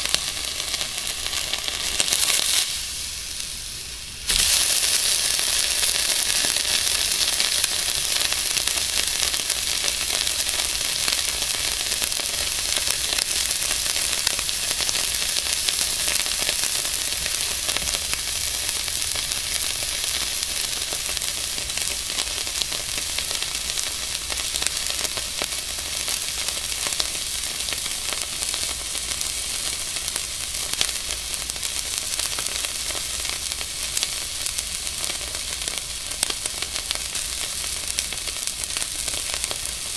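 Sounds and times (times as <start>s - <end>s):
steak sizzling: 0.0s - 39.9s.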